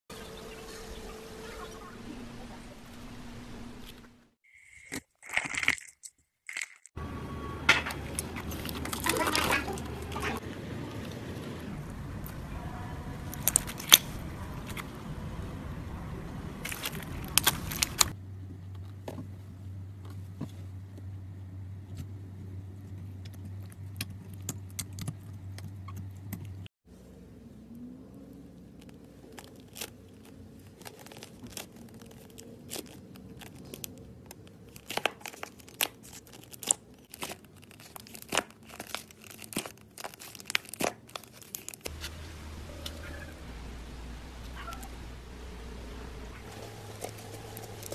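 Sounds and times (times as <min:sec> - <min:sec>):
slime crackling and popping: 0:28.8 - 0:41.9
steady low hum: 0:41.9 - 0:47.9.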